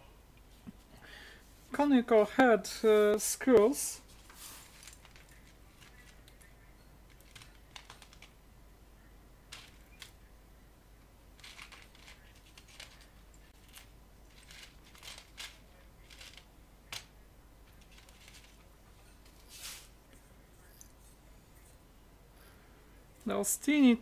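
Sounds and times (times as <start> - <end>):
small parts clicking and rattling: 4.6 - 8.4, 9.5 - 10.2, 11.4 - 19.4.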